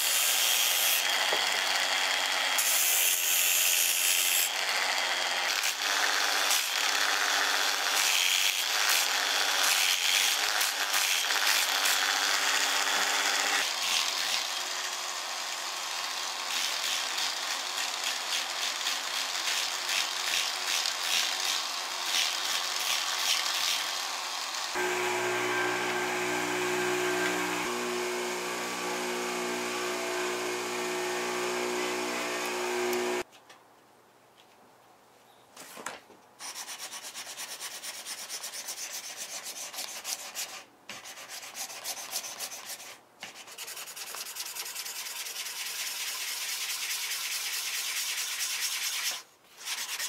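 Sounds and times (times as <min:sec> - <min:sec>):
angle grinder sanding wood: 0:00.0 - 0:33.2.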